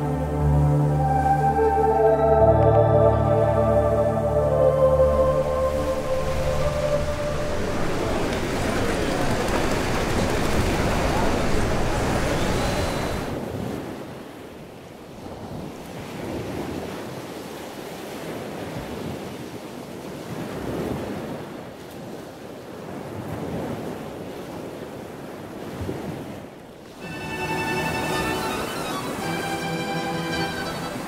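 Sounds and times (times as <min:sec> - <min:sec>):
surf breaking: 0:05.7 - 0:13.4.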